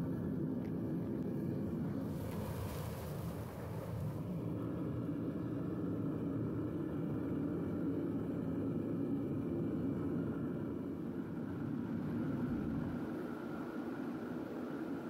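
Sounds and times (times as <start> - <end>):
furnace burner rumbling: 0.0 - 15.0
hiss of flaring metal: 2.1 - 4.2.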